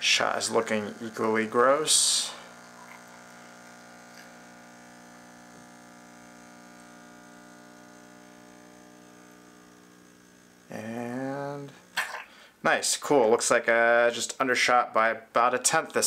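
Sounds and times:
espresso machine pump humming: 0.0 - 12.0.

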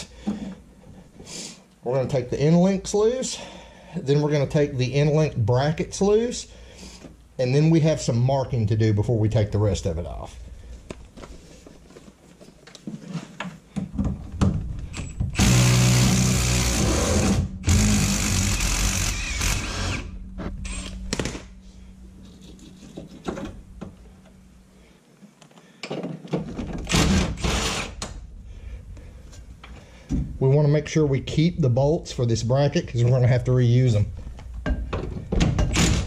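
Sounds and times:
impact wrench hammering: 15.0 - 21.5.

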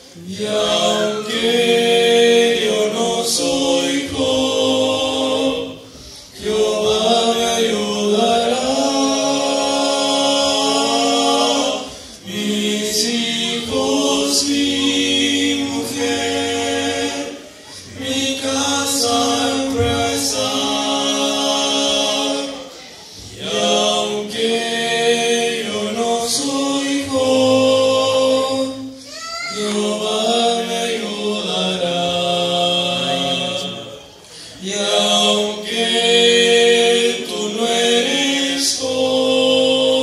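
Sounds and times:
male vocal quartet singing: 0.0 - 40.0.

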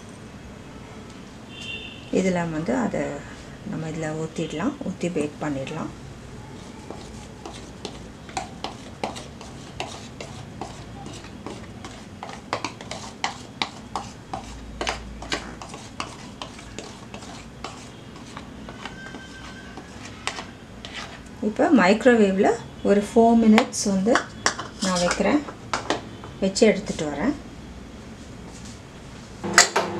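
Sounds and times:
whisk scraping glass bowl: 6.6 - 21.3.

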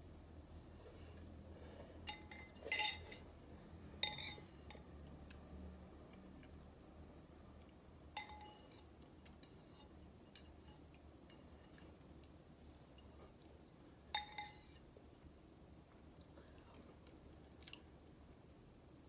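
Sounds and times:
metal spoon clinking against bowl: 2.0 - 3.3, 4.0 - 4.9, 8.1 - 11.8, 14.1 - 14.8.

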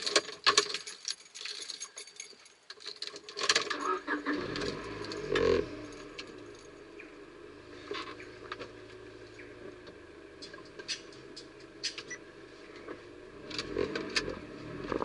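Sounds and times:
car keys jangling: 0.0 - 14.9
car engine starting and idling: 3.5 - 15.0.

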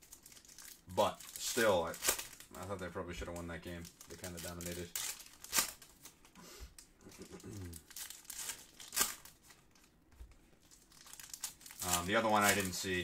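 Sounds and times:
plastic wrappers crinkling and tearing: 0.0 - 13.0.

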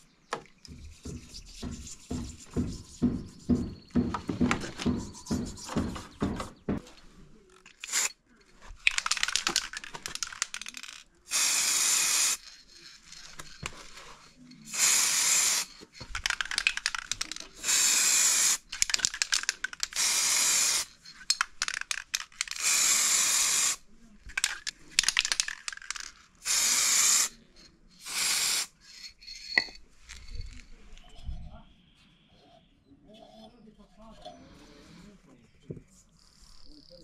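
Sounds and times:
spray can clicks and rattles: 7.5 - 8.2, 8.8 - 27.4, 28.0 - 30.3
spray can hissing: 7.8 - 8.1, 9.0 - 13.7, 14.7 - 19.2, 19.8 - 21.0, 22.5 - 23.8, 25.3 - 27.4, 28.0 - 29.1.

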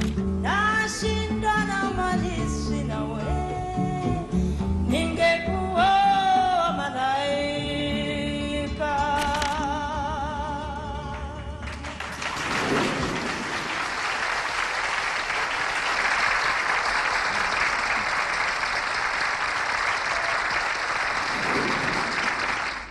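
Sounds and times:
audience applauding: 11.6 - 22.9.

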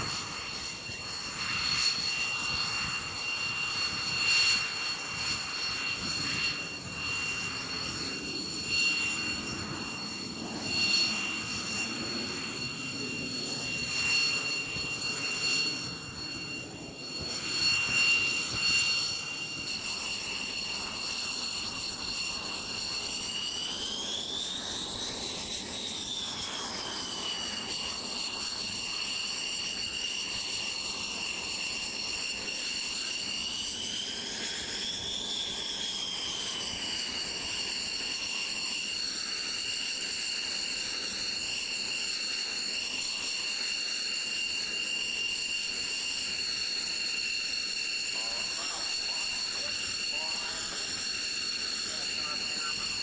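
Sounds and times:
jet engine whine: 0.0 - 53.0.

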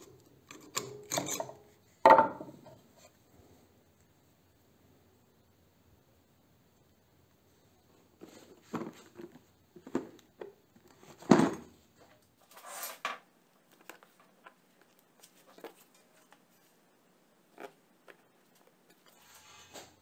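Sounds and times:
knocks and taps on workbench: 2.1 - 2.6
scraping rustle: 12.4 - 13.1, 18.9 - 20.0.

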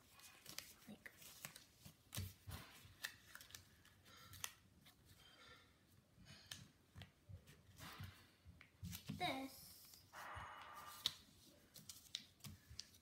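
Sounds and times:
paper rustling and crinkling: 0.0 - 5.1, 8.8 - 10.2, 10.8 - 13.0
soft taps pressing paper folds: 10.9 - 13.0.

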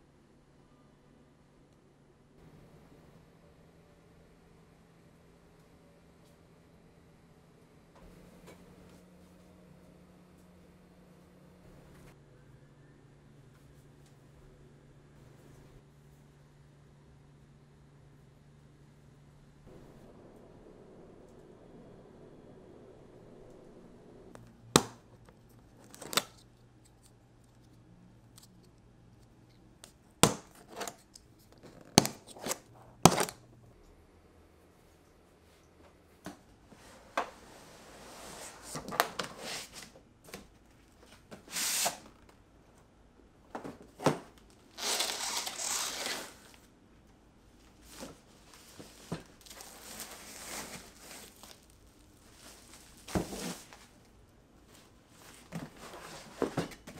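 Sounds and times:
packaging rustling and tearing: 44.6 - 46.6, 47.9 - 53.9.

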